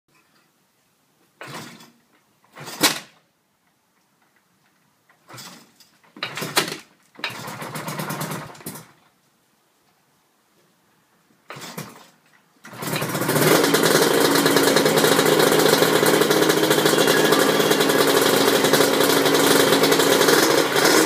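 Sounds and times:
motorcycle engine turning over: 0:01.4 - 0:01.9, 0:02.5 - 0:03.2, 0:05.2 - 0:09.0, 0:11.5 - 0:21.0.

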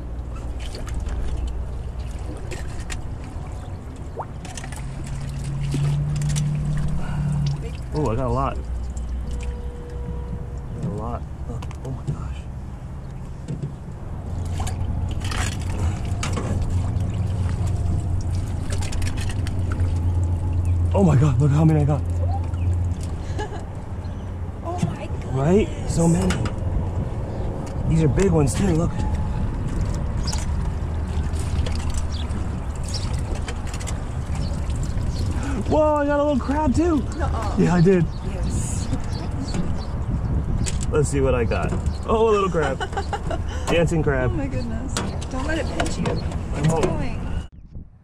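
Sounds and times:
water sloshing around boat: 0:00.0 - 0:47.5
steady low rumble: 0:00.0 - 0:48.0
net sloshing and splashing water: 0:00.4 - 0:08.1, 0:14.4 - 0:20.6, 0:29.7 - 0:35.4.

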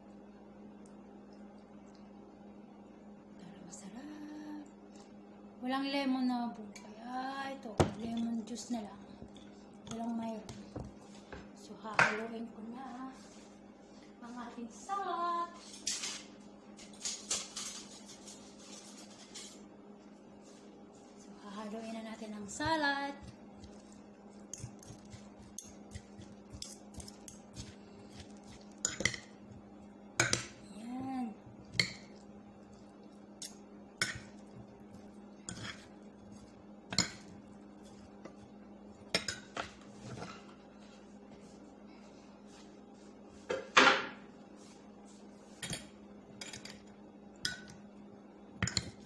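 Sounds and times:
steady low hum: 0:00.0 - 0:49.0
kitchenware clattering: 0:43.5 - 0:44.2.

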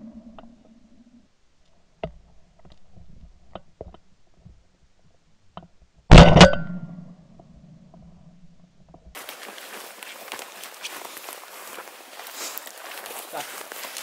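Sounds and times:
shotgun shots: 0:06.1 - 0:06.8.

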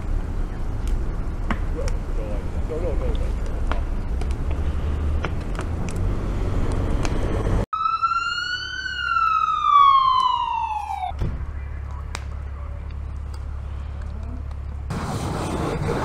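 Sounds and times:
noisy rumble with pops: 0:00.0 - 0:07.6, 0:11.1 - 0:16.0
fire engine siren wailing: 0:07.7 - 0:12.3.

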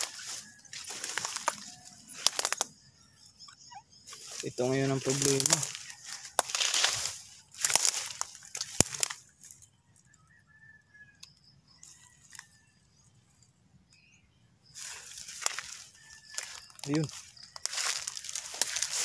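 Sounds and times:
twigs snapping: 0:00.0 - 0:02.7, 0:04.1 - 0:09.6, 0:14.8 - 0:19.0
footsteps through dry grass: 0:00.0 - 0:03.0, 0:03.9 - 0:09.7, 0:14.8 - 0:19.0
faint high chirps: 0:00.0 - 0:07.1.

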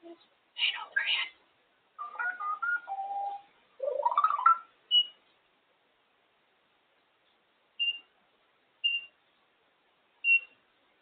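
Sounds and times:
parrot beep-like whistles: 0:02.0 - 0:03.5.

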